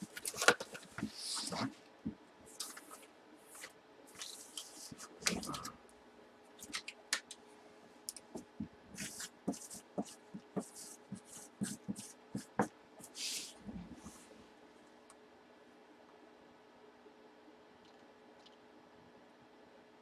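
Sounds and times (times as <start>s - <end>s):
marker scratching on cardboard: 8.3s - 14.2s.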